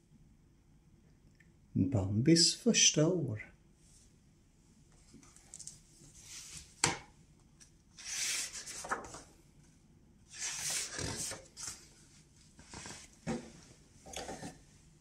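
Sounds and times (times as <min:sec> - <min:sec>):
book pages turning: 0:08.0 - 0:09.3, 0:10.3 - 0:12.0, 0:12.6 - 0:13.4.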